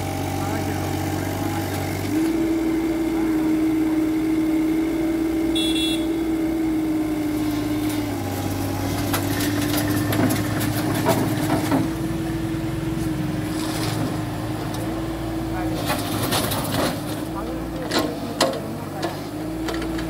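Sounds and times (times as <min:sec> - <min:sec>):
diesel engine running at high revs: 0:00.0 - 0:20.0
hydraulics working: 0:00.0 - 0:20.0
metal clanks and knocks: 0:09.0 - 0:12.0.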